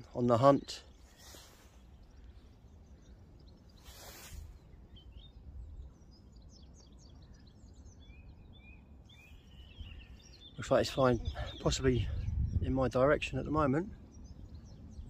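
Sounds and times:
small birds chirping: 0.0 - 15.0
short rustles: 3.8 - 4.7.

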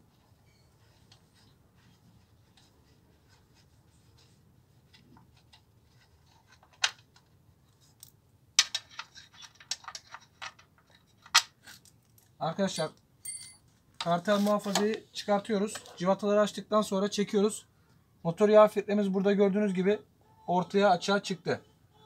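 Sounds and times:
metal guard being handled: 8.0 - 14.9.

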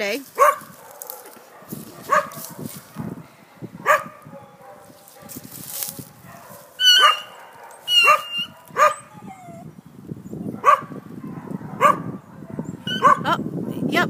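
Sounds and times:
dog barking: 0.4 - 9.4, 10.5 - 13.8.

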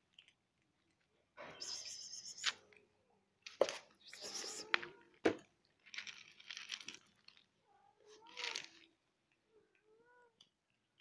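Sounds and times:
plastic rustling and scraping: 5.2 - 7.5.

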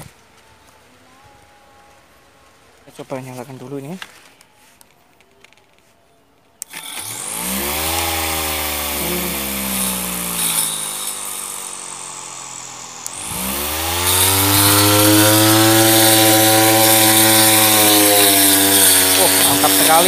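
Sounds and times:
motor spinning a trimmer blade: 6.6 - 20.0.

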